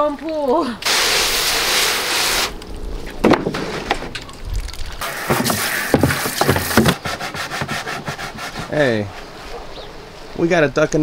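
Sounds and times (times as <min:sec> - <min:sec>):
water pouring out: 0:04.0 - 0:06.9
plastic knocks and scrapes: 0:05.0 - 0:08.3.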